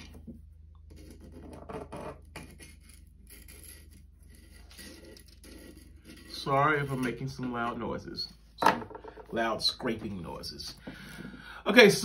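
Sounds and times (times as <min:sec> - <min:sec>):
hand tool scraping mug edge: 0:00.9 - 0:07.1.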